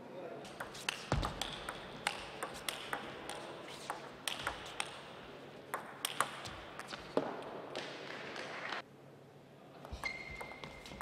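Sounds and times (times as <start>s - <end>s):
table tennis ball clicks: 0.5s - 7.0s.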